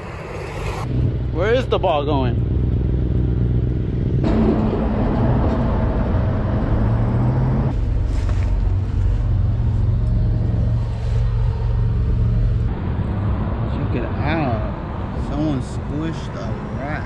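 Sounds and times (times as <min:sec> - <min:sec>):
cars driving past: 0:00.0 - 0:17.0.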